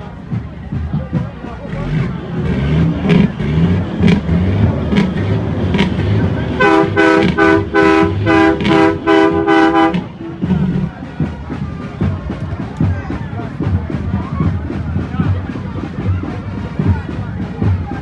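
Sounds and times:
truck air horn blasts: 0:06.5 - 0:10.6.

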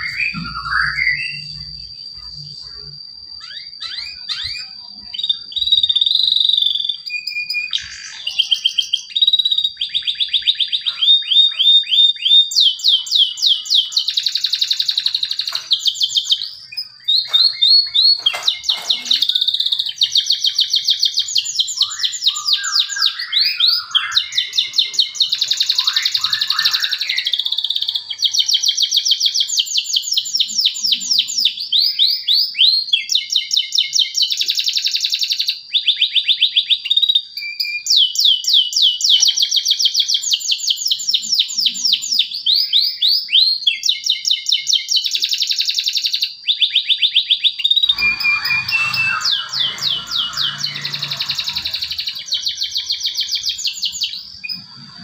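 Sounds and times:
canary singing trills: 0:00.0 - 0:55.0
thin high whistle: 0:47.8 - 0:51.6.

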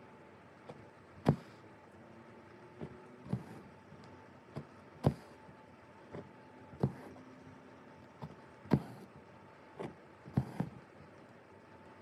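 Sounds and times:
needle punching through fabric: 0:00.6 - 0:01.6, 0:02.7 - 0:07.2, 0:08.2 - 0:10.9.

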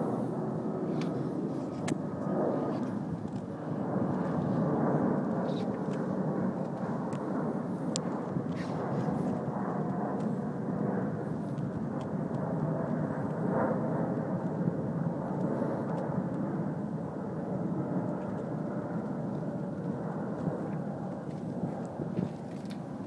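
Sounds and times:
distant jet airliner rumble: 0:00.0 - 0:23.0.

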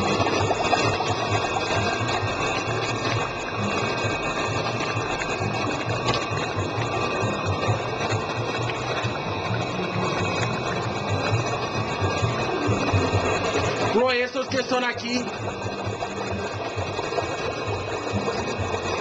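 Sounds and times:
machinery motor pulsing: 0:00.0 - 0:19.0.

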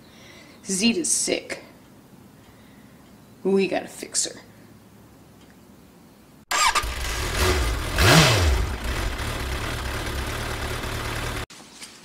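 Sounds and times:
motorcycle engine revving: 0:06.5 - 0:11.5.

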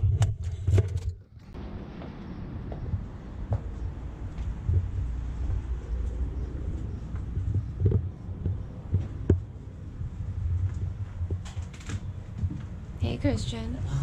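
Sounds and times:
wind on microphone: 0:00.0 - 0:13.1
microphone handling noise: 0:07.1 - 0:12.8.

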